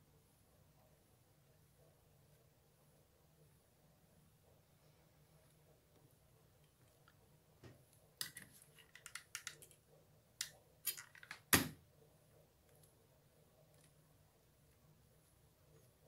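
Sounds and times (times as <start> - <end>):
light clicks and taps of tools: 6.0 - 9.8.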